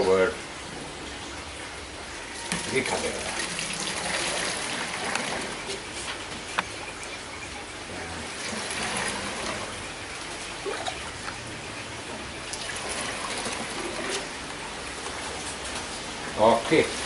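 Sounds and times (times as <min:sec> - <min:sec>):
liquid trickling through filter: 0:00.0 - 0:17.0
liquid sloshing: 0:02.4 - 0:06.1.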